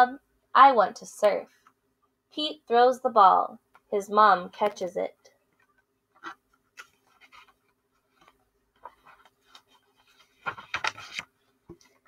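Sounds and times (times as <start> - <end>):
paper pages rustling: 6.2 - 12.0
page turning sweep: 8.2 - 11.3.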